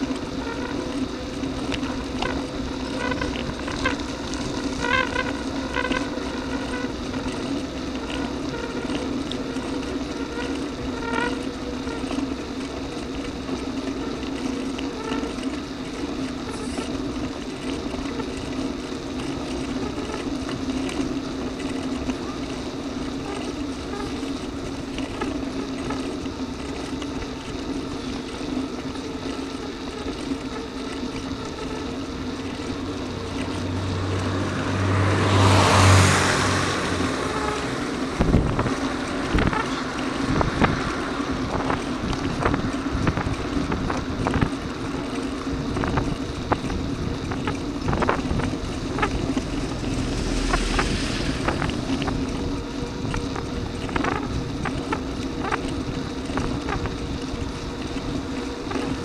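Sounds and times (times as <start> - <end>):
bicycle riding noise: 0.0 - 59.0
car passing: 32.5 - 44.0, 46.6 - 55.7.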